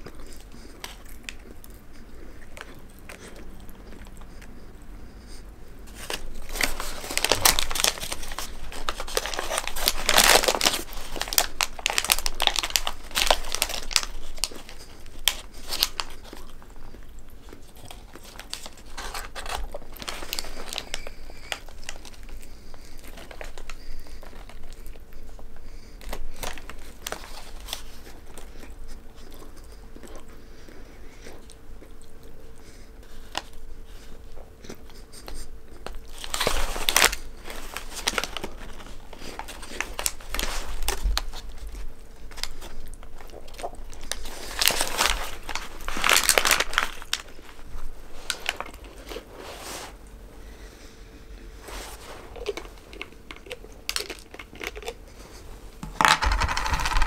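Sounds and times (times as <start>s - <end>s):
biting and chewing food: 0.0s - 49.3s, 51.4s - 57.0s
paper wrapper crinkling: 5.9s - 16.7s, 17.5s - 25.0s, 26.0s - 28.4s, 35.4s - 49.9s, 51.6s - 57.0s.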